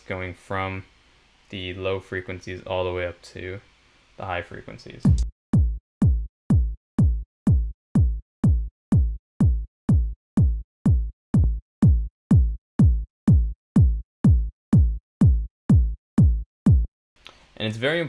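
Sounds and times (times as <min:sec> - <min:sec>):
looping techno kick drum: 0:05.0 - 0:16.9.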